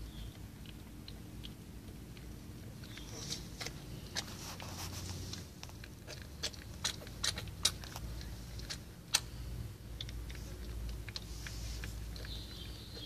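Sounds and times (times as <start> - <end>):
cats' mouths wet clicking: 0.2 - 4.3, 5.3 - 13.0.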